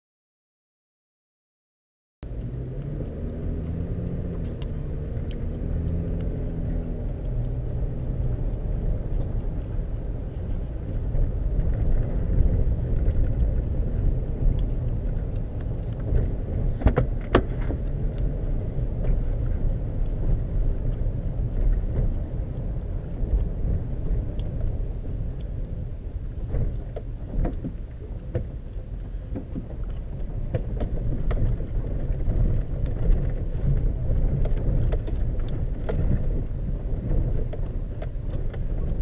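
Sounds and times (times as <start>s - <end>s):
engine and tyre rumble: 2.2s - 39.0s
sharp clicks and knocks: 10.9s - 18.3s, 25.4s - 39.0s.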